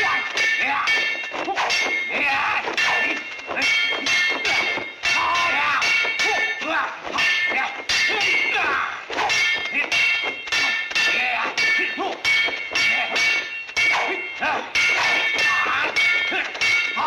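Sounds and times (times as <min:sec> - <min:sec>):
shouts and cries: 0:00.0 - 0:10.0, 0:13.8 - 0:17.0
swords clashing: 0:00.0 - 0:17.0.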